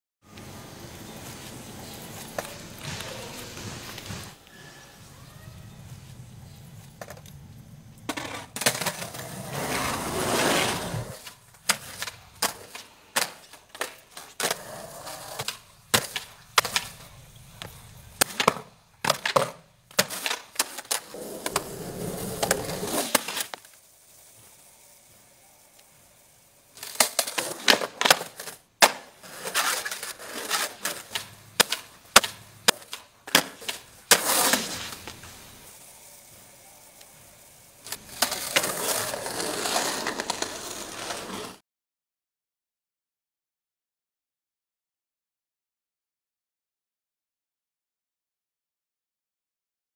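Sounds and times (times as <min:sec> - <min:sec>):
skateboard wheels rolling on asphalt: 0:00.3 - 0:04.6, 0:05.6 - 0:41.6
skateboard deck clacking: 0:08.1 - 0:23.8, 0:26.8 - 0:35.2, 0:37.8 - 0:41.6.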